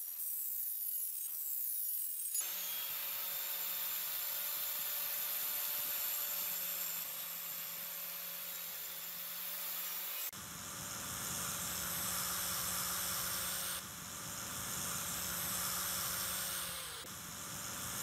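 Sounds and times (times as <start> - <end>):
grinder motor humming: 2.4 - 18.0
polishing pad hissing on blade: 5.8 - 18.0.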